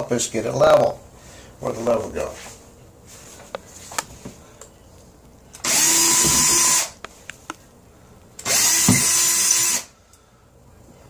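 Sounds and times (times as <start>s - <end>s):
cordless drill running: 5.6s - 7.0s, 8.4s - 9.9s.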